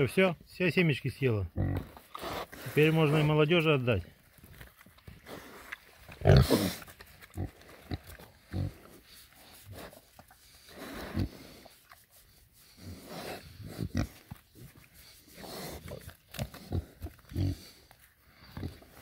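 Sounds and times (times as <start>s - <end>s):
pigs grunting: 1.4s - 3.4s, 5.2s - 9.0s, 10.7s - 11.7s, 12.8s - 14.3s, 15.3s - 19.0s.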